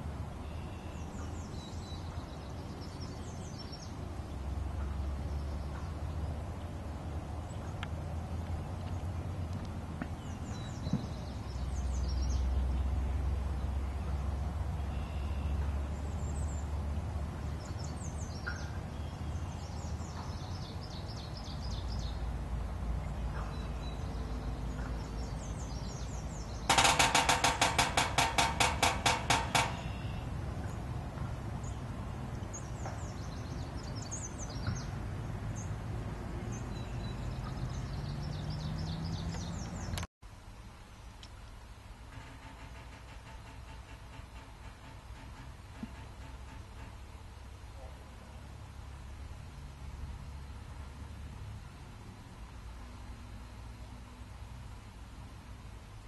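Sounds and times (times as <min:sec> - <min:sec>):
birds singing: 0:00.0 - 0:09.3, 0:10.0 - 0:40.1
woodpecker drumming on metal lid: 0:26.5 - 0:30.7, 0:42.1 - 0:47.1.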